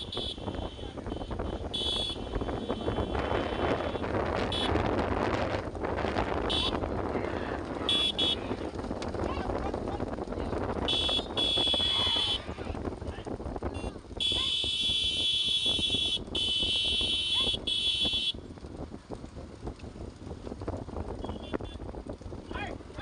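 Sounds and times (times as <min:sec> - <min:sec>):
shrill buzzer-like horn blasts: 0:00.0 - 0:04.8, 0:06.5 - 0:06.8, 0:07.8 - 0:08.6, 0:10.8 - 0:12.4, 0:13.8 - 0:18.4
bullock cart noise: 0:00.0 - 0:23.0
motorbikes riding: 0:00.0 - 0:23.0.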